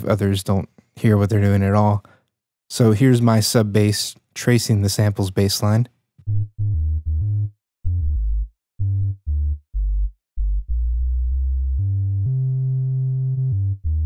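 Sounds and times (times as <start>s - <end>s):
synthesized sub bass notes: 6.2s - 14.0s.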